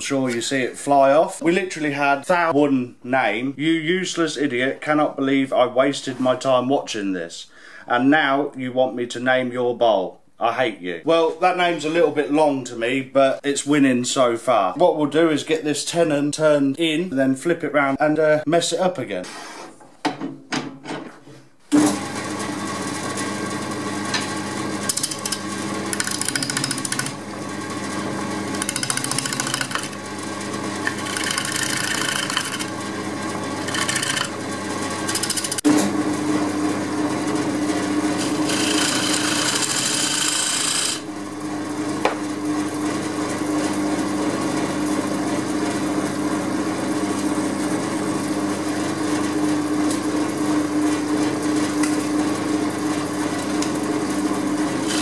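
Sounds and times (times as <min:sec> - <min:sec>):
woodturning lathe humming: 0:24.4 - 0:35.7, 0:36.8 - 0:41.3, 0:54.7 - 0:55.0
gouge scraping spinning wood: 0:24.8 - 0:27.2, 0:27.8 - 0:35.7, 0:37.9 - 0:41.1, 0:54.8 - 0:55.0.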